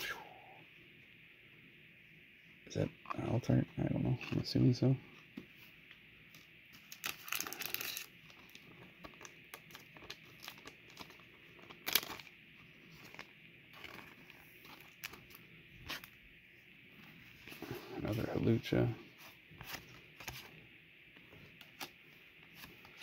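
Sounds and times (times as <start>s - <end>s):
plastic crinkling: 6.8s - 16.2s.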